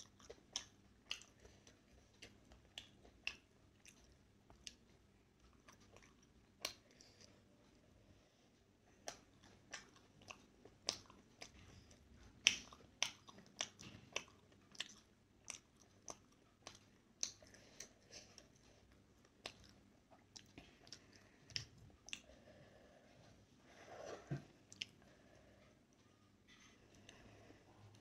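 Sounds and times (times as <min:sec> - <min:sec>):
mouth chewing wet smacks: 0:00.0 - 0:04.8, 0:09.0 - 0:18.6, 0:19.2 - 0:22.3.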